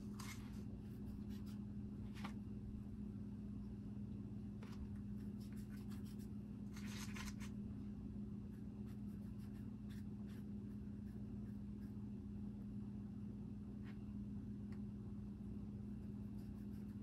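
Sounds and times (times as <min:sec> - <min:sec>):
steady low hum: 0:00.0 - 0:17.0
paintbrush scratchy strokes: 0:05.2 - 0:07.4, 0:08.5 - 0:12.1, 0:15.9 - 0:17.0.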